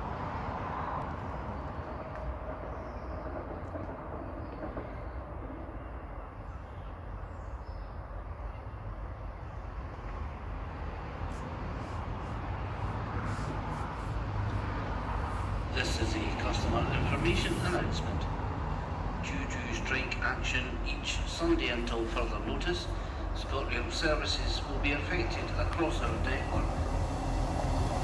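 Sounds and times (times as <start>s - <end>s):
passenger train rumble: 0.0s - 28.0s.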